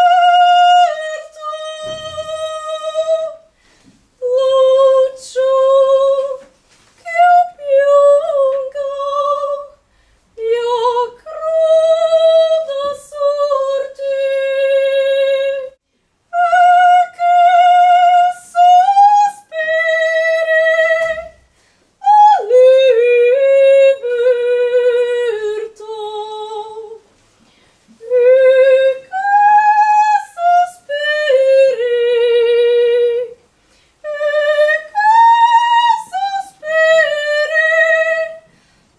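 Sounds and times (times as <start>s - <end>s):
woman singing unaccompanied: 0.0s - 27.0s, 28.0s - 38.5s.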